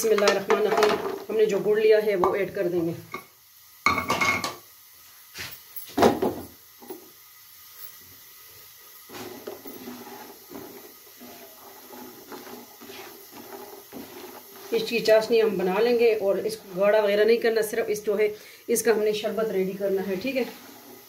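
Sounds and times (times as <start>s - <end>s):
utensil knocking on frying pan: 3.2s - 4.6s
spatula stirring wet syrup: 9.1s - 18.4s, 19.1s - 21.0s.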